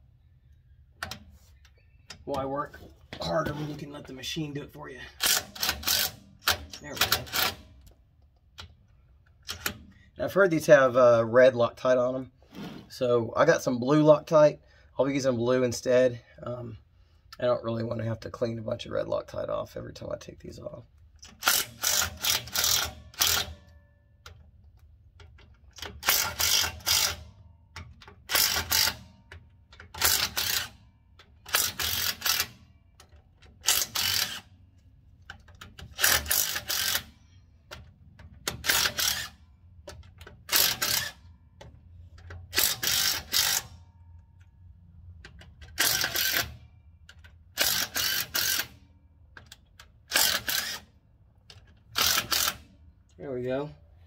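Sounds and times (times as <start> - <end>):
impact wrench hammering: 37.8 - 43.8.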